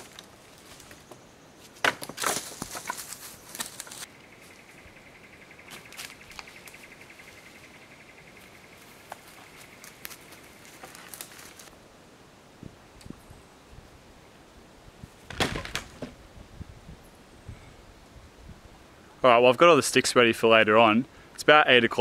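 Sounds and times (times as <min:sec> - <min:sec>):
dry sticks snapping: 0:01.8 - 0:04.1, 0:09.1 - 0:11.7.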